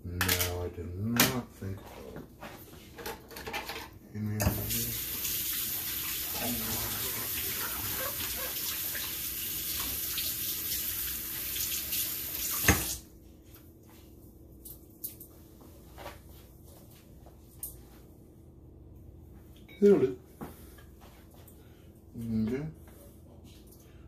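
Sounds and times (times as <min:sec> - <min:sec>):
tap running into sink: 0:12.4 - 0:13.0.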